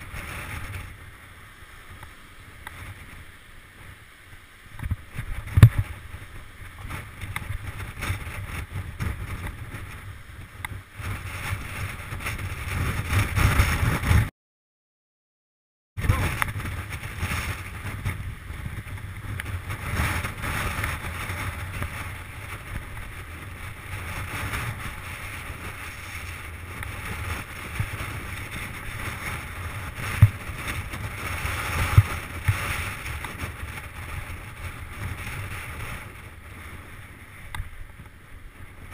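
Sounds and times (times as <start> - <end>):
wind buffeting microphone: 0.0 - 14.3, 16.0 - 38.9
bike tyres rumbling on stones: 4.7 - 14.3, 16.0 - 38.9
bike rattling: 4.8 - 14.3, 16.0 - 38.9
bike hitting bumps: 16.1 - 34.0.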